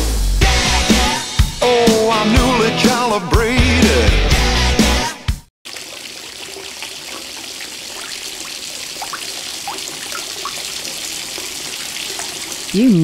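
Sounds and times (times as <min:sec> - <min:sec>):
water spilling and trickling: 0:05.6 - 0:13.0
water drops plinking: 0:05.7 - 0:13.0.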